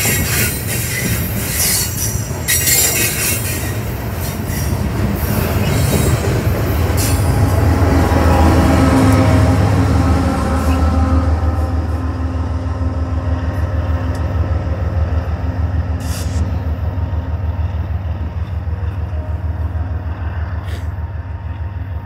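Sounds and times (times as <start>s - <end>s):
diesel locomotive engine throbbing: 0.0s - 22.0s
short hiss: 16.0s - 16.4s.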